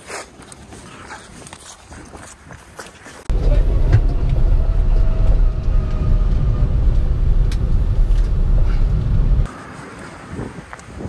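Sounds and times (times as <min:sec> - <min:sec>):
car cabin road rumble: 0:03.3 - 0:09.5.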